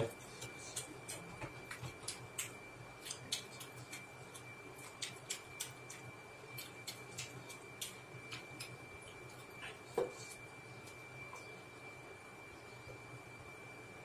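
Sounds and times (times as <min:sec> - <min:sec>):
faint high whine: 0:00.0 - 0:14.0
chewing mouth clicks: 0:00.3 - 0:10.4.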